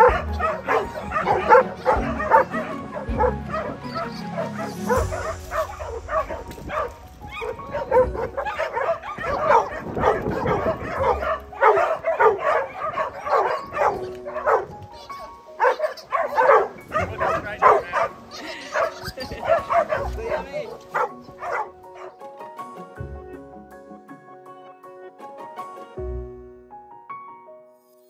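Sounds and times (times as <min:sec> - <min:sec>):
pack of dogs barking: 0:00.0 - 0:22.4
music playing: 0:00.0 - 0:27.8.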